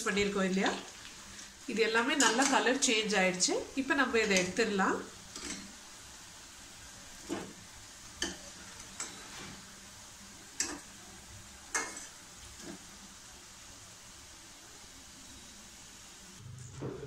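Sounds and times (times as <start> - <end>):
oil sizzling while deep-frying: 0.0 - 16.4
metal spoon clinking on pan: 2.2 - 2.6, 5.3 - 5.7, 11.7 - 12.1.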